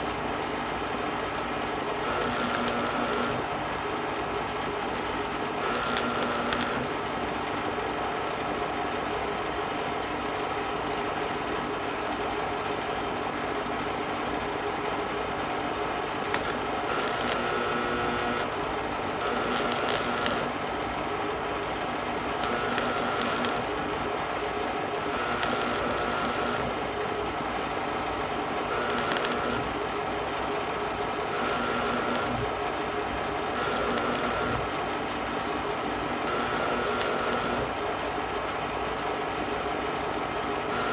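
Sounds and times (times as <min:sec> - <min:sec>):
welding arc crackling hiss: 0:02.0 - 0:03.5, 0:05.6 - 0:06.9, 0:16.1 - 0:20.6, 0:22.2 - 0:24.0, 0:25.0 - 0:26.9, 0:28.7 - 0:29.8, 0:31.2 - 0:32.6, 0:33.4 - 0:34.8, 0:36.2 - 0:37.7, 0:40.6 - 0:40.9
steady hum: 0:02.0 - 0:03.6, 0:05.5 - 0:07.0, 0:15.6 - 0:21.4, 0:22.2 - 0:27.2, 0:28.6 - 0:30.1, 0:30.7 - 0:35.0.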